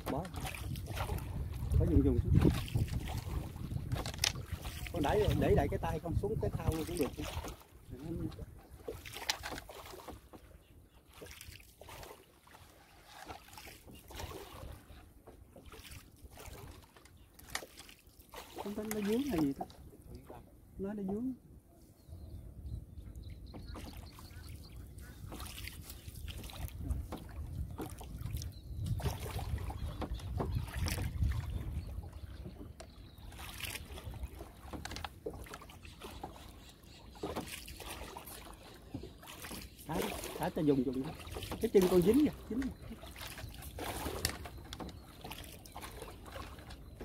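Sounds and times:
wind on microphone: 0:00.0 - 0:08.8, 0:22.0 - 0:34.4
water splashing around boat: 0:00.0 - 0:21.9, 0:22.8 - 0:47.0.

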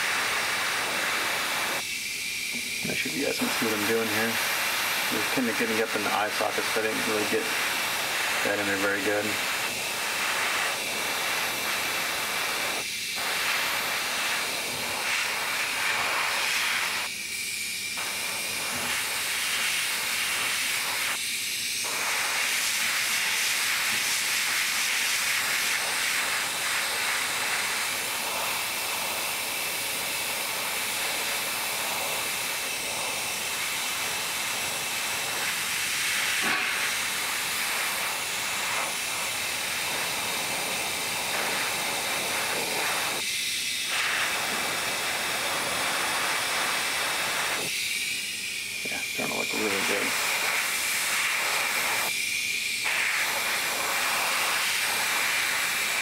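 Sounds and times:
airbrush hissing: 0:00.0 - 0:56.0.

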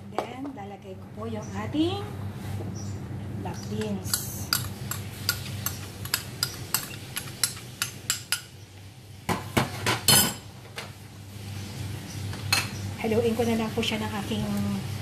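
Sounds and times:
metal spoon tapping bowl: 0:03.8 - 0:08.5.

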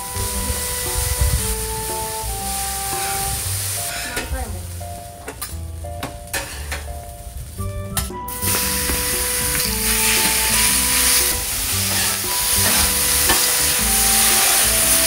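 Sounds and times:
background music: 0:00.0 - 0:15.0
noodles sizzling: 0:00.0 - 0:15.0.

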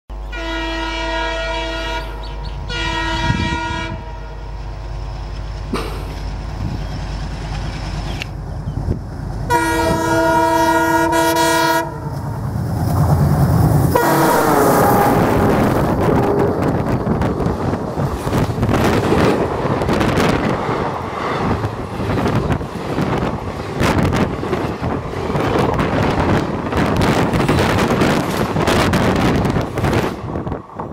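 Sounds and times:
locomotive air horn: 0:00.3 - 0:04.5, 0:09.5 - 0:12.2, 0:13.9 - 0:16.7
train wheels on rails: 0:02.0 - 0:30.9.

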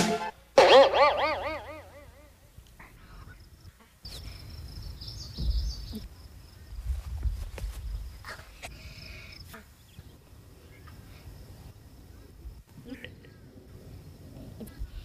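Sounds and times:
insects chirping: 0:01.1 - 0:15.0
wind rumble on microphone: 0:06.6 - 0:08.4.

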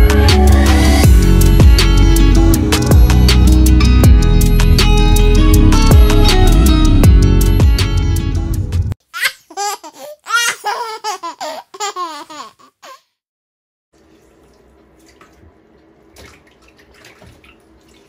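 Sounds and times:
baby cooing and laughing: 0:09.2 - 0:13.1
water trickling: 0:14.0 - 0:18.0.

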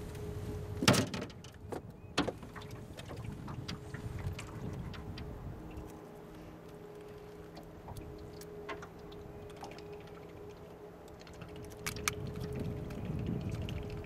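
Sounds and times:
faint steady hum: 0:00.0 - 0:14.0
clicks and taps in metal boat: 0:00.8 - 0:06.0, 0:07.5 - 0:09.9
low rumble: 0:07.8 - 0:14.0.

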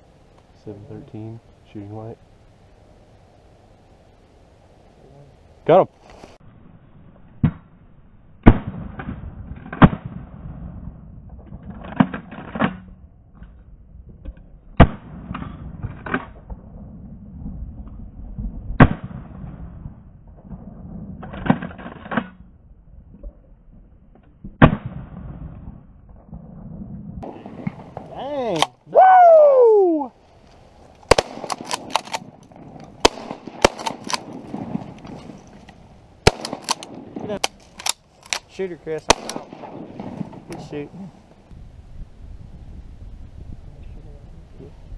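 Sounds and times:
shotgun shots with echo: 0:31.1 - 0:32.3, 0:33.0 - 0:34.9, 0:36.2 - 0:37.5, 0:38.9 - 0:40.8.

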